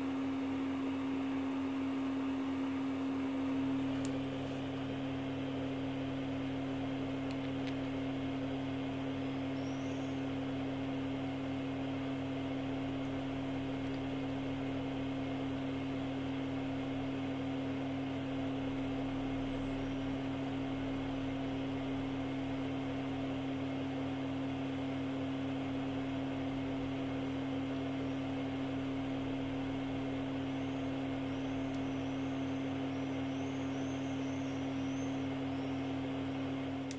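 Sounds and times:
machine hum: 0.0 - 36.9.

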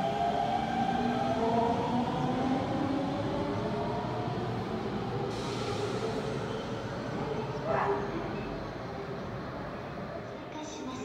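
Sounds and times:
train hiss: 5.2 - 6.8.

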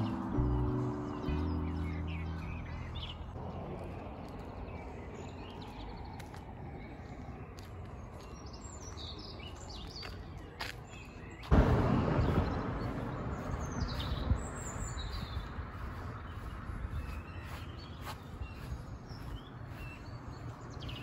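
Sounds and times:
outdoor background noise: 0.0 - 21.0
small birds chirping: 0.0 - 21.0
sudden loud rush of noise: 11.5 - 15.8.

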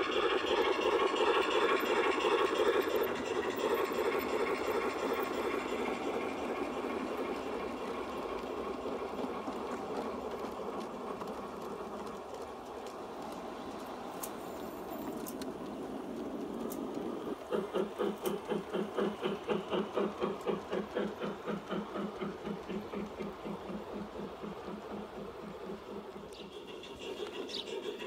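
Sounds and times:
model train rolling on rails: 0.0 - 28.0.

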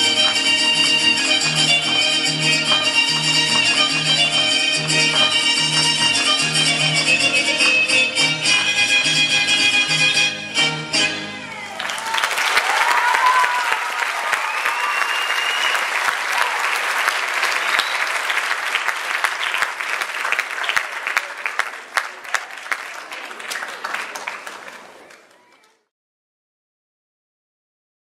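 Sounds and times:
audience applauding: 0.0 - 7.3, 11.6 - 25.9
people cheering: 11.5 - 25.8.

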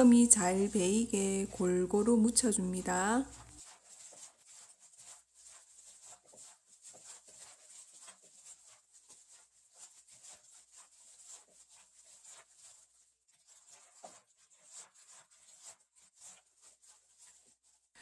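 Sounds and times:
wet squishing of cabbage mixing: 0.0 - 17.8.

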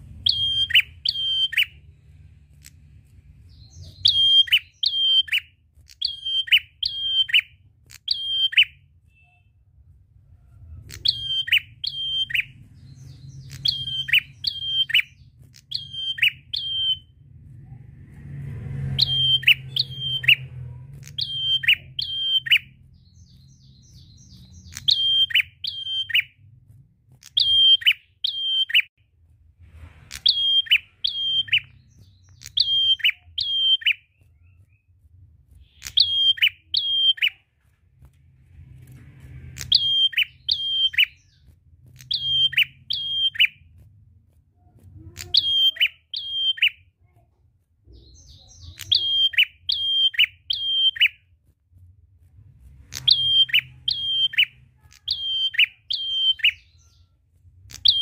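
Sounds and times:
bird singing sharp notes: 0.0 - 1.9, 3.5 - 9.6, 10.8 - 17.1, 18.8 - 26.4, 30.1 - 34.8, 35.6 - 37.4, 39.4 - 43.6, 45.1 - 46.9, 47.9 - 51.2, 52.9 - 58.0.

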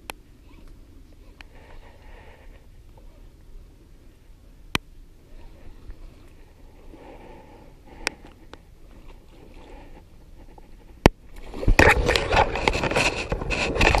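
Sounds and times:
grass stems rustling against camera: 10.4 - 14.0.

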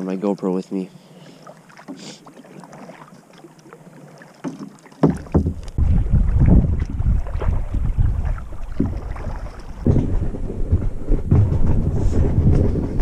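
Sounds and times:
kayak paddle splashing water: 0.0 - 11.2
wind buffeting microphone: 5.3 - 13.0.

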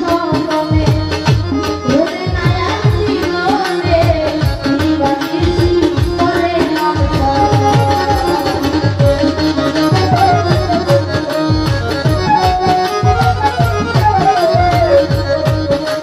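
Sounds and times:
woman singing: 0.0 - 11.2.

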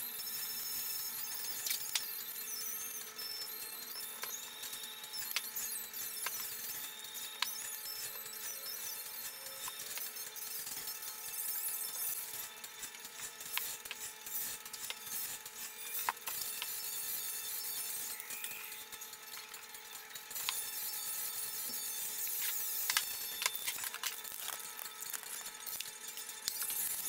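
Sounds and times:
tape handling clicks and rustles: 1.5 - 2.1, 4.1 - 8.1, 12.0 - 17.1, 17.7 - 20.8, 21.5 - 27.0
spray can ball rattling: 21.5 - 27.0.

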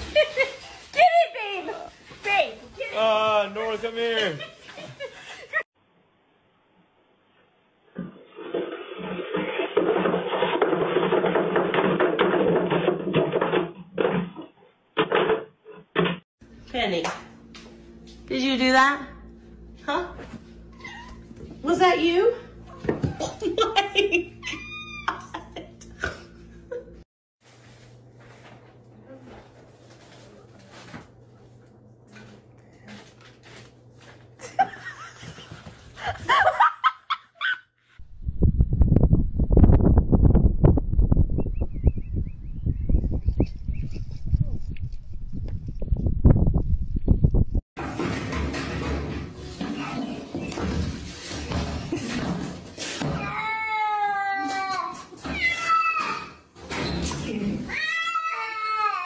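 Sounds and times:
person laughing: 23.2 - 27.0, 34.4 - 37.6.

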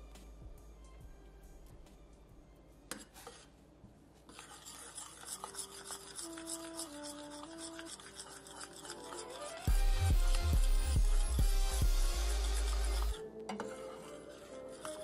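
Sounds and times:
spoon scraping saucepan: 4.3 - 15.0.

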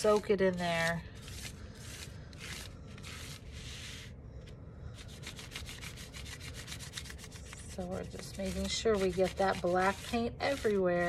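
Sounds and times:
paintbrush scrubbing paper: 0.0 - 4.2, 5.0 - 11.0.

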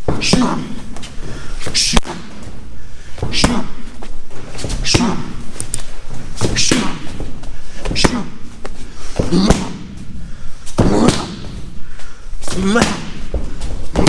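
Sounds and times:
strikes slapping pads: 6.4 - 8.3, 9.2 - 10.0, 10.8 - 11.6, 12.5 - 14.0.

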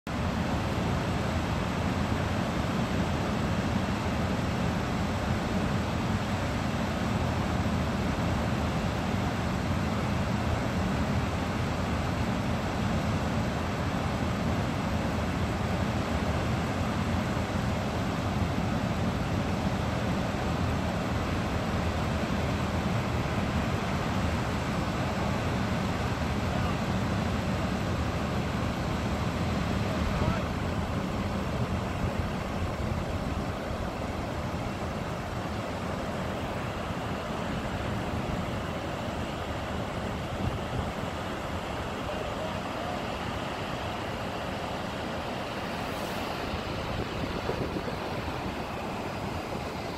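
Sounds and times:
outdoor rushing noise: 28.0 - 49.9.

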